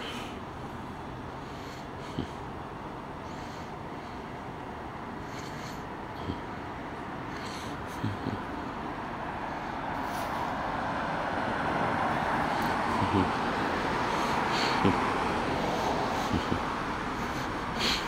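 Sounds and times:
vehicle tyre and engine rush: 0.0 - 18.0.

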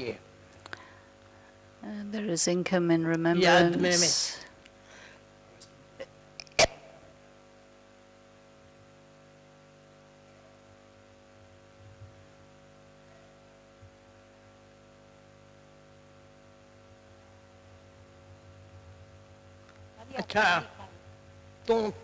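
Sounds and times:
faint electrical mains hum: 0.0 - 22.0.

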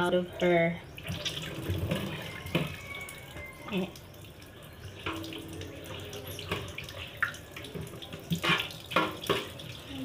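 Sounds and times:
tap water running into sink: 1.0 - 10.0
knocks of items in sink: 7.8 - 9.6.

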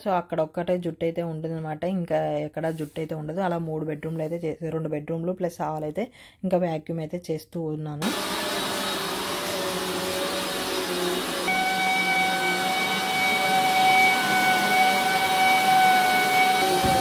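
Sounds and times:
vacuum cleaner whining: 8.0 - 17.0.

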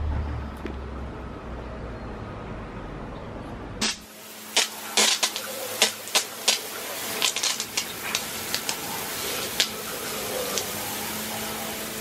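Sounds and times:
hose spraying water: 3.8 - 12.0
water splatting on rubber mats: 3.9 - 9.8.

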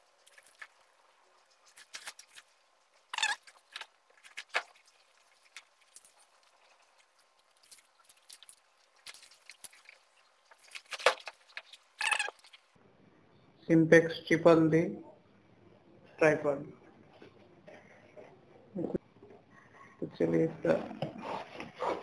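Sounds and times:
plastic packaging crinkling: 0.0 - 12.7.

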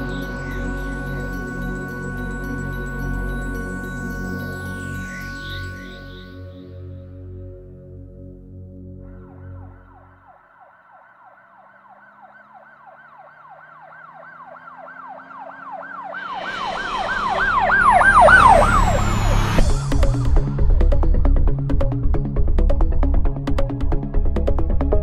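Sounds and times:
siren in falling sweeps: 0.0 - 6.9, 9.0 - 21.0
soft ambient music: 0.0 - 11.9, 15.5 - 25.0.

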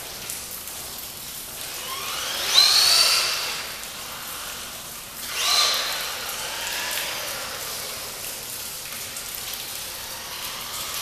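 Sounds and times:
rain hissing: 1.7 - 11.0
electric motor whining: 1.8 - 4.6, 5.2 - 8.2.

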